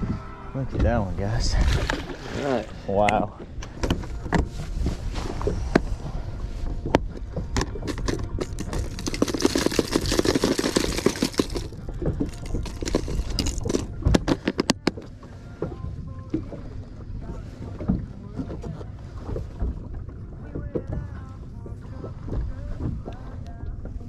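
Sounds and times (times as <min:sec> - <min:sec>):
plastic lures clattering: 0:07.6 - 0:15.0.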